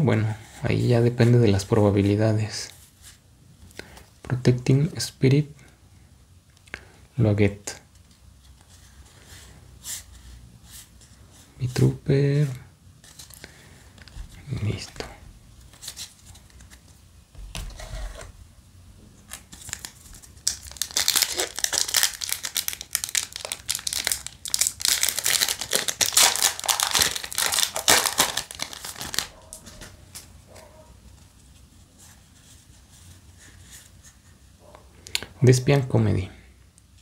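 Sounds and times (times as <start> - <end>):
rustling of pack and cards: 13.0 - 18.3, 19.2 - 34.4
foil pack tearing and crinkling: 19.3 - 30.2.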